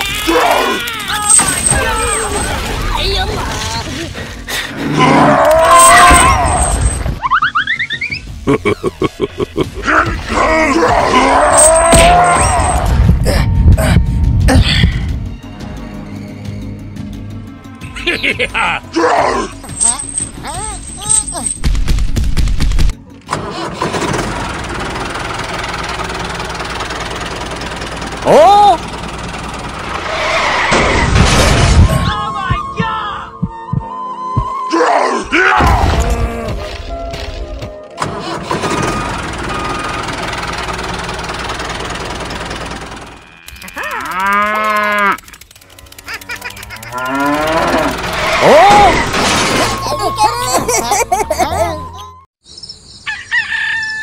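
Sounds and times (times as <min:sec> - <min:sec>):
tractor engine starting: 0:23.1 - 0:31.2, 0:38.0 - 0:50.0
cow mooing: 0:43.2 - 0:45.3, 0:46.8 - 0:48.5.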